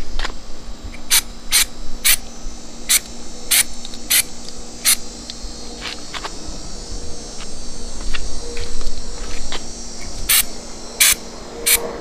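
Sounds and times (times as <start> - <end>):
aerosol spray can hissing: 0.9 - 5.1, 8.6 - 11.9.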